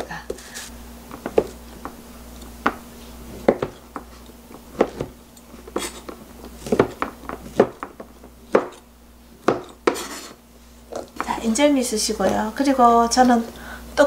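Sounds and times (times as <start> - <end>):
knife chopping on cutting board: 1.1 - 2.0, 2.6 - 10.4.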